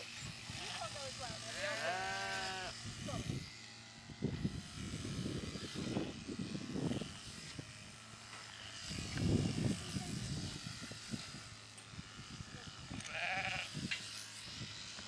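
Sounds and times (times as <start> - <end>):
electric shearing handpiece buzzing: 0.0 - 15.0.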